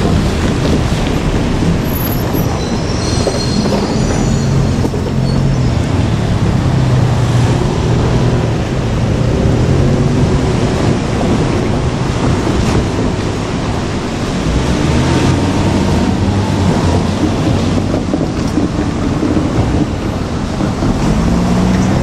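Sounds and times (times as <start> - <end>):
diesel engine drone: 0.0 - 22.0
high-pitched wheel squeal: 1.8 - 6.0.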